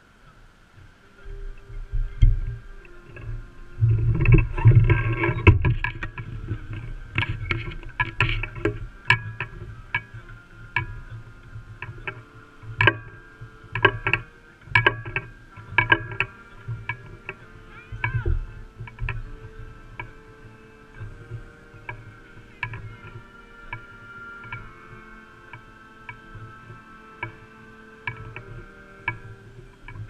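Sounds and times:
rumbling wind on microphone: 0.0s - 30.0s
brass band held notes: 1.0s - 30.0s
microphone handling noise: 1.2s - 10.0s.

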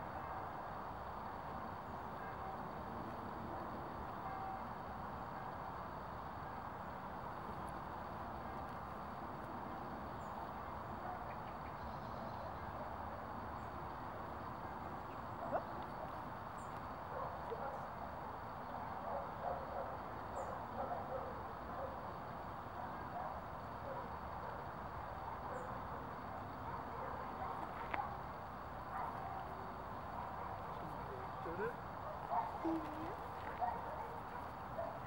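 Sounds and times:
outdoor background noise: 0.0s - 35.0s.

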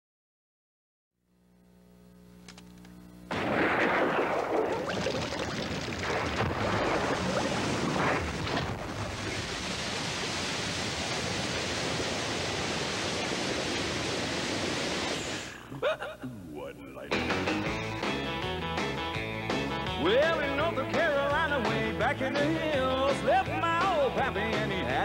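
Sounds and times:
faint steady hum: 1.2s - 5.2s
liquid gusher rushing spray: 4.0s - 15.5s.

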